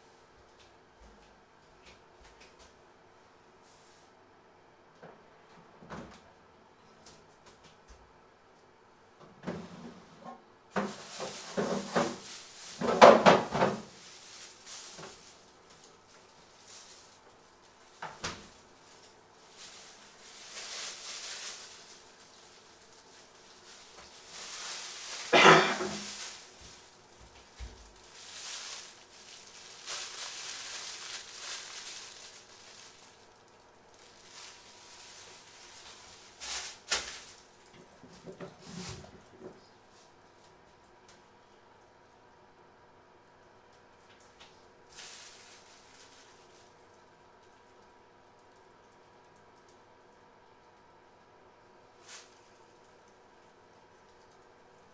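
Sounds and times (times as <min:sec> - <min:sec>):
kitchen clatter of knocks and scrapes: 0:09.4 - 0:14.0, 0:25.2 - 0:26.4, 0:37.8 - 0:39.6
plastic bags crinkling: 0:10.7 - 0:37.8, 0:44.1 - 0:47.8, 0:52.0 - 0:53.4
bags rustling on wooden table: 0:10.8 - 0:37.6, 0:44.9 - 0:46.8.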